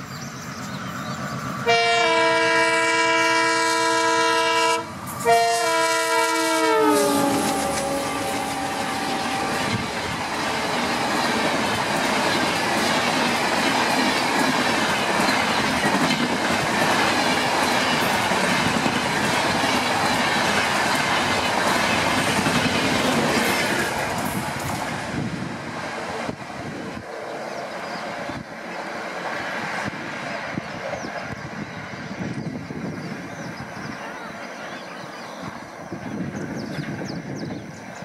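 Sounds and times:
train wheels roaring on rails: 0.0s - 38.0s
locomotive horn: 1.6s - 10.0s
clickety-clack over rail joints: 9.6s - 25.2s.

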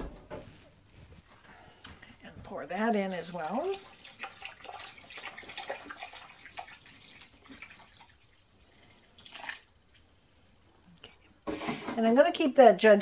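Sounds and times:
water pouring into a pot: 2.7s - 10.6s.

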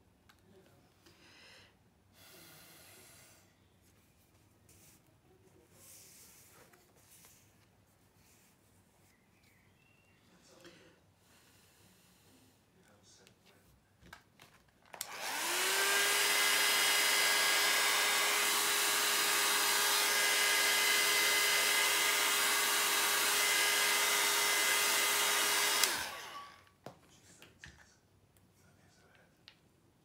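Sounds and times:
heat tool motor blowing air: 15.0s - 26.6s.

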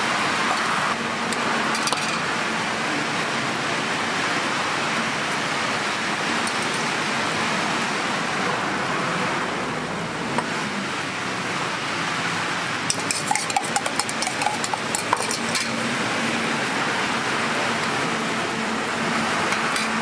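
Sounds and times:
spoon clinking in metal mug: 12.9s - 15.7s.

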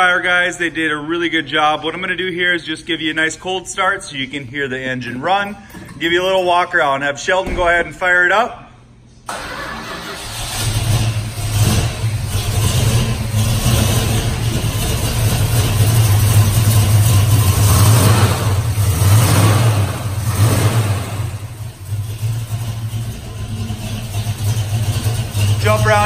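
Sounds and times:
car engine revving and idling: 10.1s - 26.0s.

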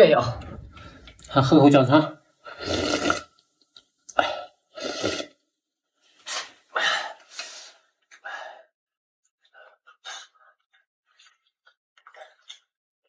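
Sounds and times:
breathy exhalations: 0.4s - 1.3s, 4.1s - 5.3s, 6.2s - 8.7s
man slurping soup: 2.5s - 3.4s, 4.2s - 5.4s.

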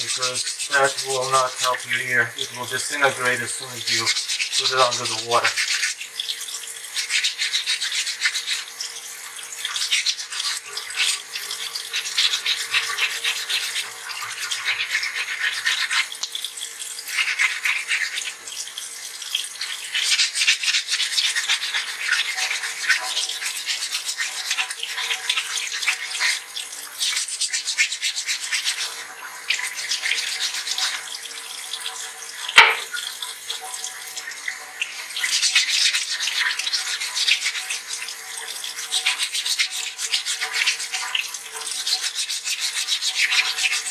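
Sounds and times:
running tap: 0.0s - 43.9s
sharp knock: 32.6s - 32.9s.

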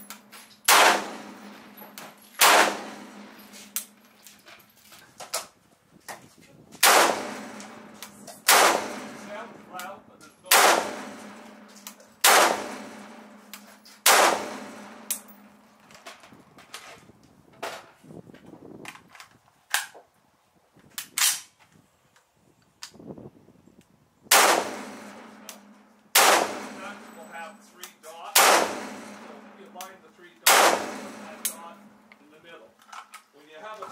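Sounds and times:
rifle firing single shots: 0.1s - 4.0s, 6.8s - 15.5s, 24.3s - 32.1s.

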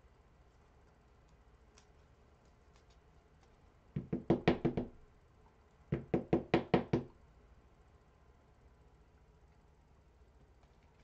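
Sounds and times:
knocking on hard surface: 4.0s - 5.0s, 5.9s - 7.1s.

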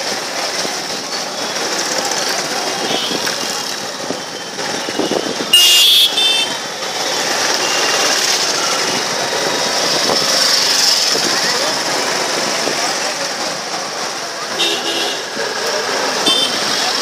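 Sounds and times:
street traffic noise: 0.0s - 17.0s
car horn honk: 5.5s - 6.6s, 14.5s - 15.3s.

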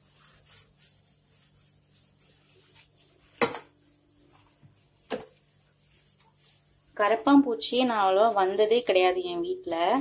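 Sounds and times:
damp cloth wiping stone countertop: 0.0s - 10.0s.

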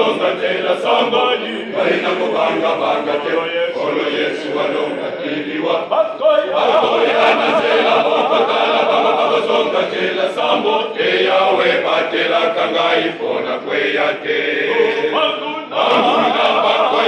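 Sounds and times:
male choir singing: 0.0s - 17.0s.

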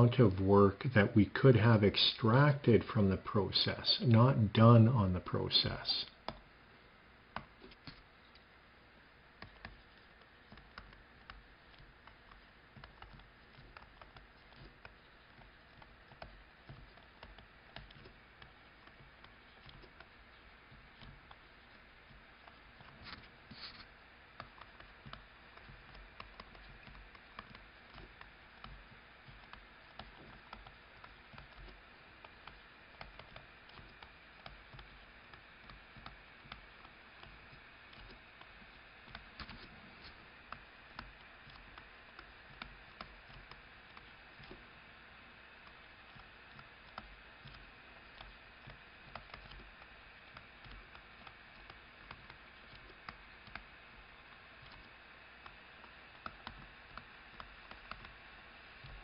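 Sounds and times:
low hiss: 0.0s - 59.0s
stylus tapping on tablet: 7.3s - 8.1s, 9.4s - 39.6s.

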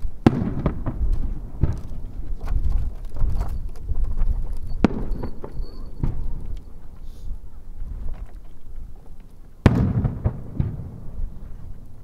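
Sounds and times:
firework shells booming: 0.2s - 2.2s, 4.7s - 6.6s, 9.6s - 11.4s.

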